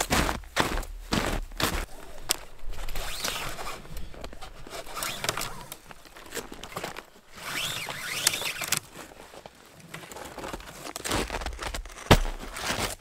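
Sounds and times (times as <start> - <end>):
clothing rustling: 0.0 - 11.7
snowshoes crunching in snow: 0.0 - 13.0
tow ropes rustling: 0.0 - 13.0.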